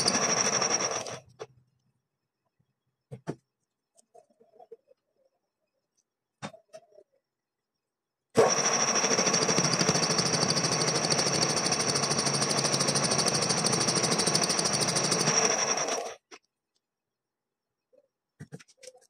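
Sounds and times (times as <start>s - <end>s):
machine cutter chattering: 0.0s - 1.3s, 8.4s - 16.2s.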